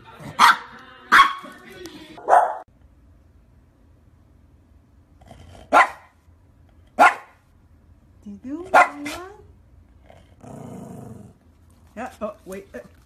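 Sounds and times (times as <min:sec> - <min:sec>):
small dog barking: 0:00.4 - 0:01.5, 0:02.2 - 0:02.7, 0:05.7 - 0:06.2, 0:07.0 - 0:07.4, 0:08.7 - 0:09.3.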